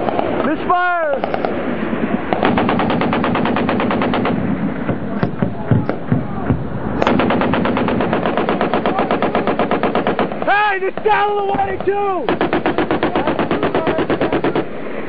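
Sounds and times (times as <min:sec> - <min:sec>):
machine gun firing: 0:02.3 - 0:06.2, 0:07.0 - 0:14.7
single gunshots: 0:02.3 - 0:10.6, 0:11.5 - 0:14.8.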